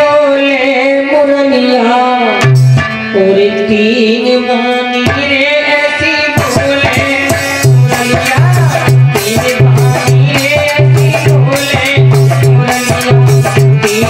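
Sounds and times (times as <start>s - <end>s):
man singing into a microphone: 0.0s - 14.0s.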